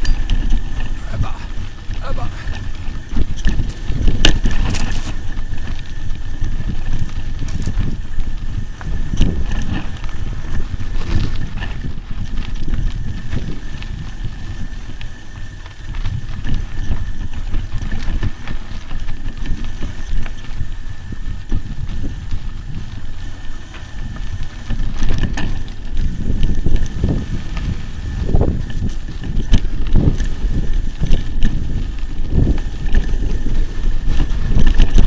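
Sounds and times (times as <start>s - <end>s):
bike rattling over bumps: 0.0s - 35.0s
tyres rumbling on dirt: 0.0s - 35.0s
wind buffeting microphone: 0.0s - 35.0s.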